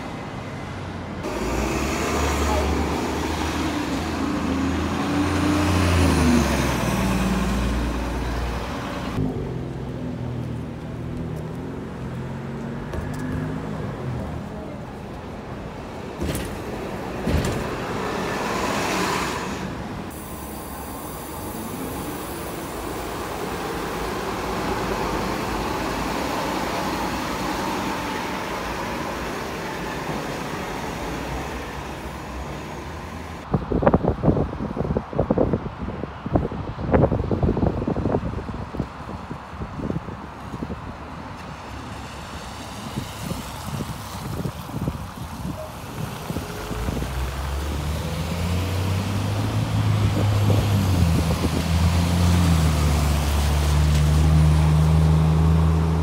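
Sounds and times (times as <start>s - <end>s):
bus engines accelerating: 0.0s - 56.0s
street traffic: 0.0s - 56.0s.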